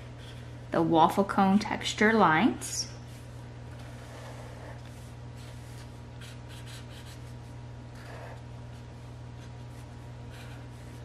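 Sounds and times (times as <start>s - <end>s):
steady low hum: 0.0s - 11.0s
marker rubbing on paper: 4.0s - 7.3s.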